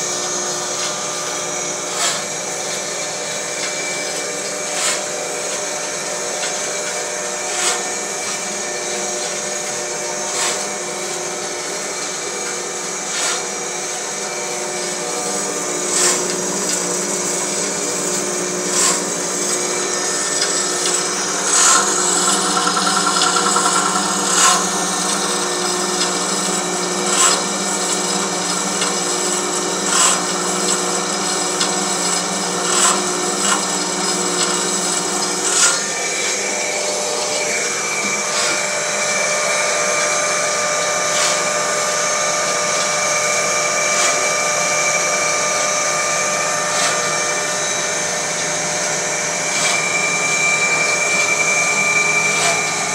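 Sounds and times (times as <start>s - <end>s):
band saw running: 0.0s - 52.9s
rattling buzz: 19.6s - 26.0s.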